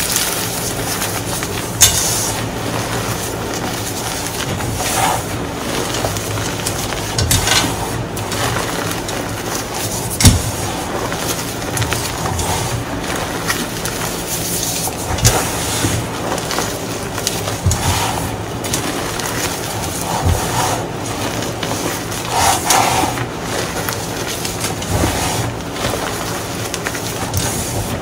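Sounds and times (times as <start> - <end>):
hands rubbing powdered chalk: 7.8 - 28.0.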